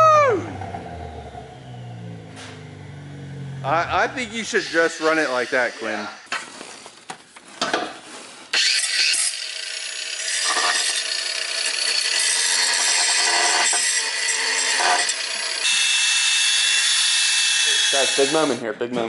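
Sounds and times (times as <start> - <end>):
cordless power tool whining: 4.0 - 6.4, 8.5 - 18.6.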